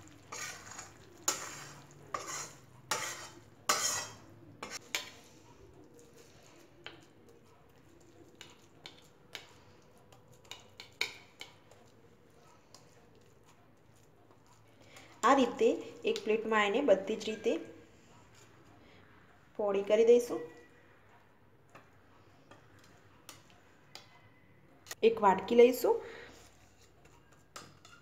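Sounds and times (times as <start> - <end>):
spatula scraping steel pan: 0.2 - 5.2.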